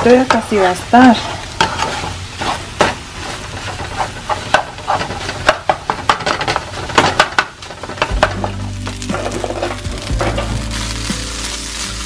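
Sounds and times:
spatula scraping a pan: 0:00.0 - 0:08.2, 0:09.1 - 0:11.0
eggs sizzling in a frying pan: 0:00.0 - 0:12.0
utensil tapping a pan: 0:04.3 - 0:08.5.

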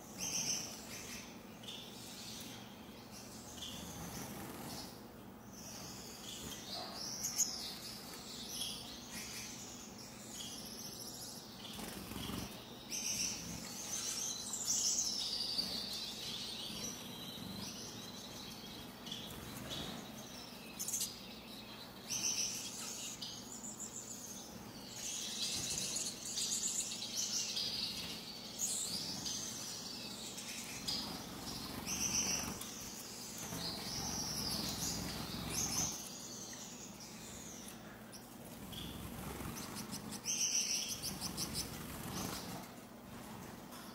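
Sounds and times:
finches chirping: 0:00.0 - 0:43.9.

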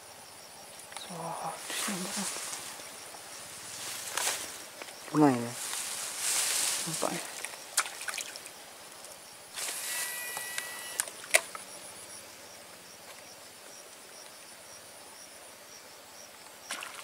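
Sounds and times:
insects chirping: 0:00.0 - 0:17.0
fishing line paying out: 0:09.5 - 0:11.6
reel brake whining: 0:09.6 - 0:11.4.

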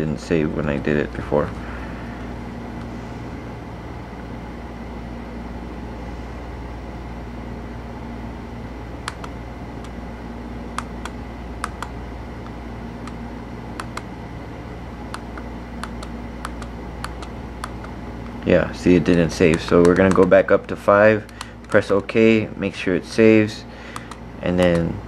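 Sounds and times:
background hum: 0:00.0 - 0:25.0
buttons clicking: 0:15.1 - 0:18.4.

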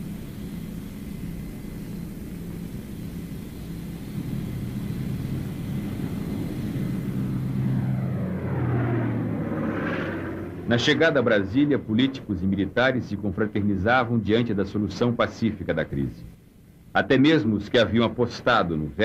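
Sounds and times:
rising rush of aircraft: 0:00.0 - 0:13.6
airplane engines droning: 0:00.0 - 0:19.0.

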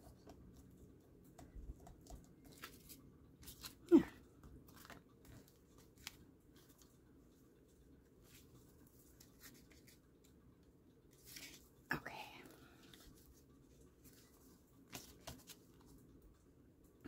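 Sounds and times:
paper pages rustling: 0:02.4 - 0:03.8, 0:08.2 - 0:10.0, 0:11.1 - 0:11.6, 0:14.0 - 0:16.0.

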